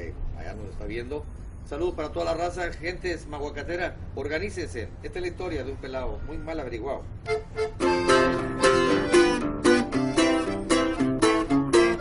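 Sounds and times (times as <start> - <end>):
accordion chords: 7.2 - 12.0.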